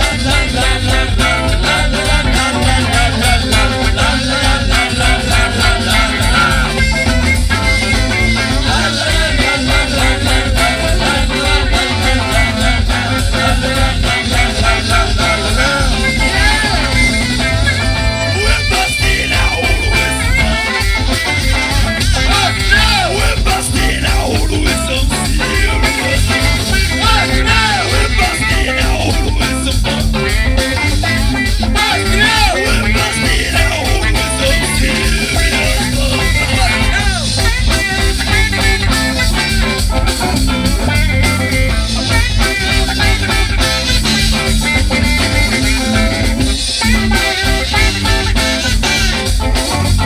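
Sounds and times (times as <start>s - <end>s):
people singing into microphones: 0.0s - 17.2s, 18.2s - 20.6s, 22.0s - 30.4s, 31.1s - 37.4s
drum kit: 0.0s - 50.0s
electric guitar: 0.0s - 50.0s
heavy bass: 0.0s - 50.0s
saxophone: 0.0s - 50.0s.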